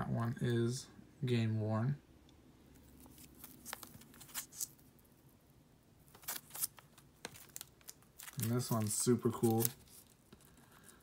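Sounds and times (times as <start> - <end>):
trading cards clicking and rustling: 3.0 - 4.8, 6.1 - 10.6.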